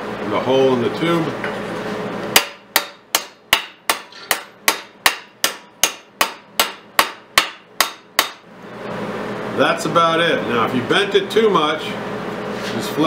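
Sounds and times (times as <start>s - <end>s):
hammer beating sheet steel: 2.3s - 8.5s.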